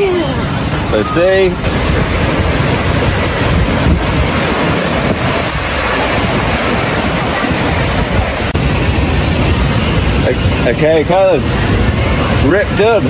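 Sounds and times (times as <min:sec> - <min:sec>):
water rushing into splash pool: 0:00.0 - 0:13.0
wind buffeting microphone: 0:00.0 - 0:13.0.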